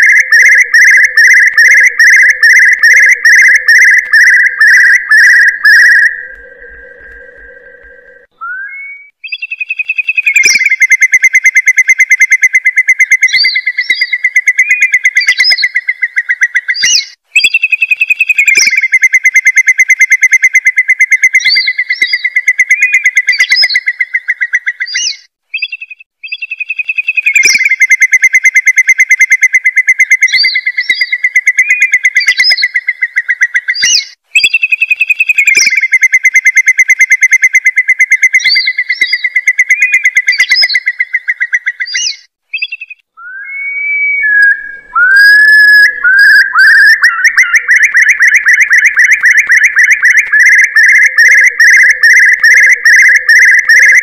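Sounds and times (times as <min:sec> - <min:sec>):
curlew bubbling trills: 0:00.0 - 0:09.4, 0:42.0 - 0:54.0
rising whistled bird notes: 0:00.0 - 0:11.6, 0:38.1 - 0:54.0.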